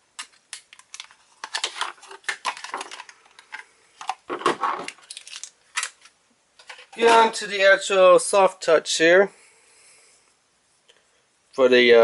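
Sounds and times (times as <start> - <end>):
plastic packaging crinkling: 0.2 - 7.4.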